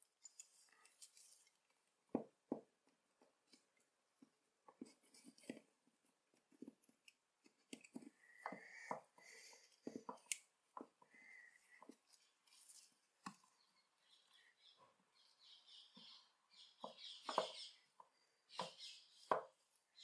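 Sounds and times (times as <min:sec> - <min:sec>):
faint metal clicks and scrapes: 0:00.2 - 0:01.8.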